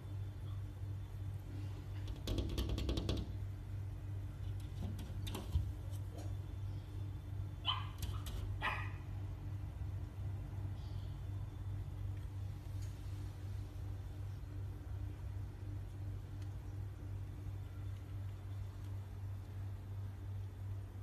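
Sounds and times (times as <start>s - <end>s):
puppy barking: 7.6s - 9.0s.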